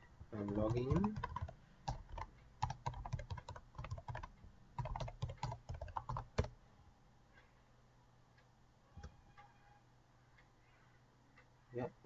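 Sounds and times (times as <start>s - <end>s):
typing on computer keyboard: 0.4s - 6.6s.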